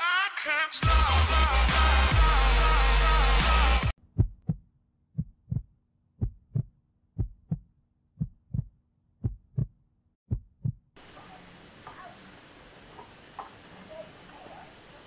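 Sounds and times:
heartbeat thumps: 4.1 - 10.9.

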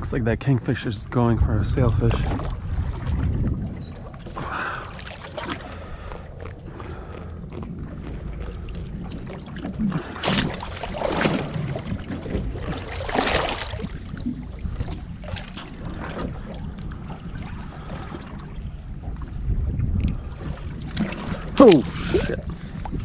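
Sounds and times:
water sloshing against hull: 0.0 - 23.0
wind on microphone: 0.0 - 23.0
loud splashes: 9.2 - 14.4, 21.0 - 22.4.

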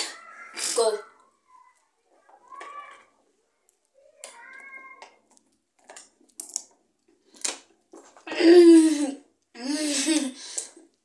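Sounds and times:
raspy vocal noises of disgust: 0.0 - 1.2.

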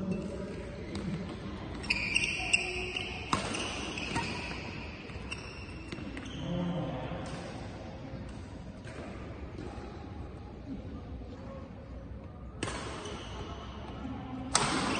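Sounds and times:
shoes squeaking on court floor: 0.1 - 6.6
racket striking shuttlecock: 3.2 - 6.2, 12.6 - 13.1, 14.5 - 14.9.

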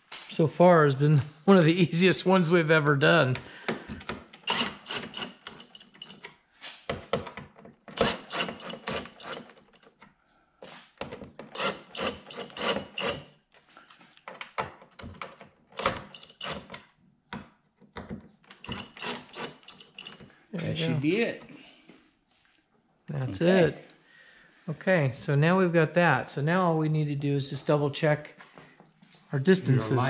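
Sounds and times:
cordless drill driving screws: 4.4 - 6.2, 7.9 - 10.0, 11.5 - 13.3, 15.8 - 16.8, 18.5 - 20.3.

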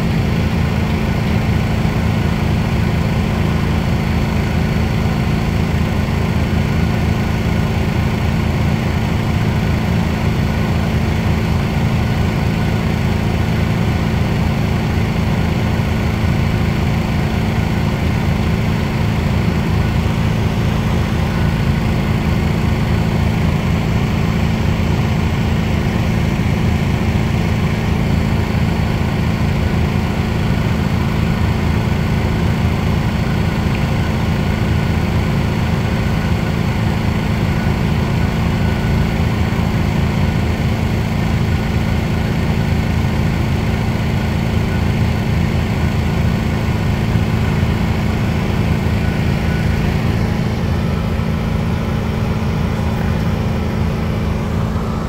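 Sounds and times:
diesel truck engines droning: 0.0 - 55.0.

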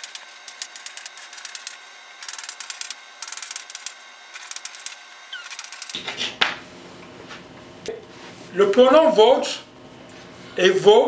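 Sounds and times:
chalk squeak: 5.3 - 5.8.

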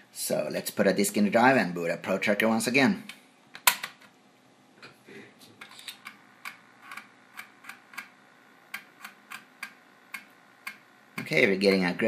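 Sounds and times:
floppy drive clicking: 5.7 - 11.4.

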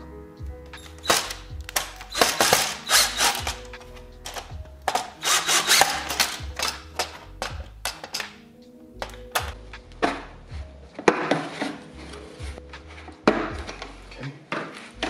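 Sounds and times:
background music with steady beat: 0.0 - 15.0
cordless drill driving screws: 0.8 - 7.2.

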